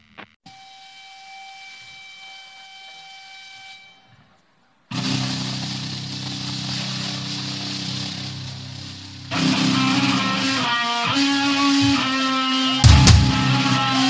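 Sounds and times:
high whistling feedback tone: 0.5s - 14.0s
distorted electric guitar chord: 4.9s - 14.0s.

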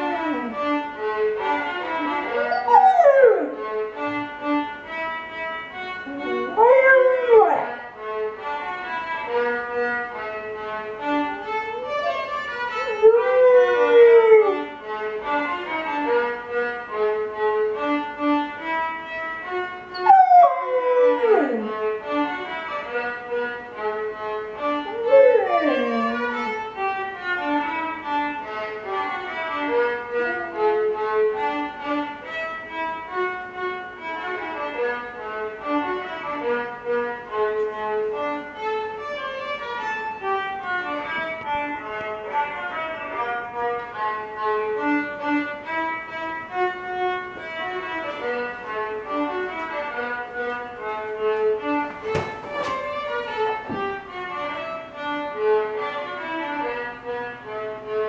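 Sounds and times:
puppy howling: 0.0s - 0.7s, 1.7s - 3.6s, 6.1s - 7.9s, 11.2s - 14.8s, 19.9s - 21.9s, 24.8s - 26.7s, 30.0s - 31.7s
slow violin music: 0.0s - 58.0s.

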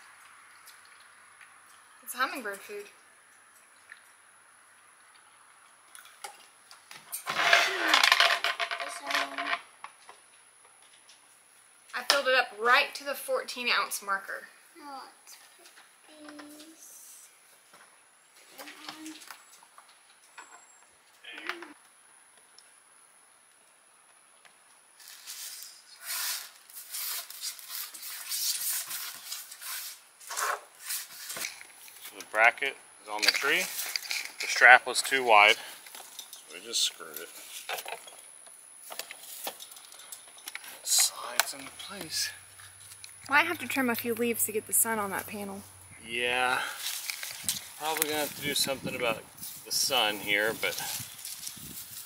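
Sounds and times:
hard plastic parts clattering: 7.2s - 9.6s
plastic parts rubbing: 7.2s - 9.6s, 25.0s - 32.1s.

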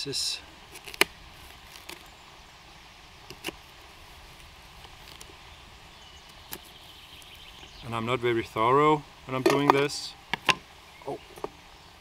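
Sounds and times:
faint outdoor hiss: 0.0s - 12.0s.

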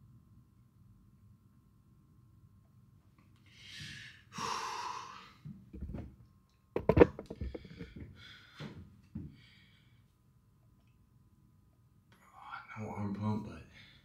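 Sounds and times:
knocks and clicks: 6.8s - 7.9s.

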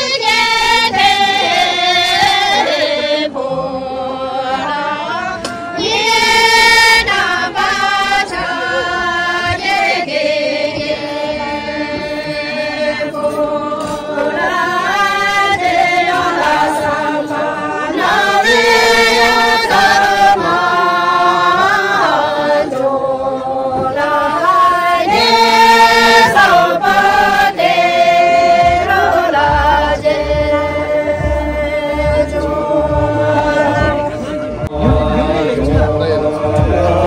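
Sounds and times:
group singing unaccompanied: 0.0s - 37.0s
dull low thumps: 28.6s - 37.0s.

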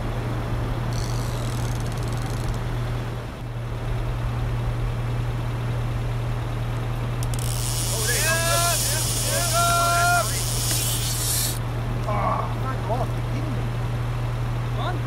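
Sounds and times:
constant rushing noise: 0.0s - 15.0s
brief high hiss: 8.4s - 11.6s.

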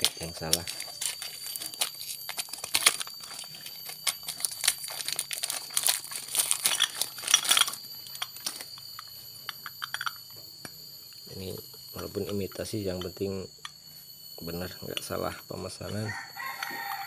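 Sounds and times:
plastic bag crinkling and tearing: 0.0s - 7.8s.

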